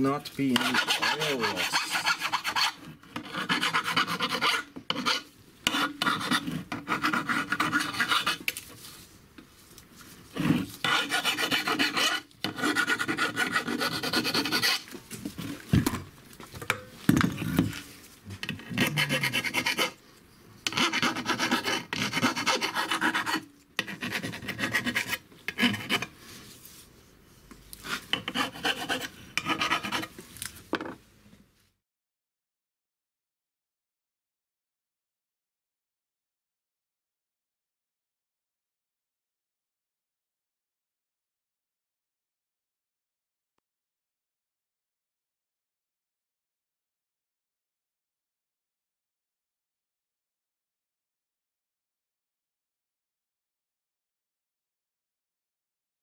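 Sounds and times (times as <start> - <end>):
rasp filing metal: 0.4 - 8.5, 10.4 - 14.9, 18.4 - 20.0, 20.7 - 26.1, 27.8 - 30.1.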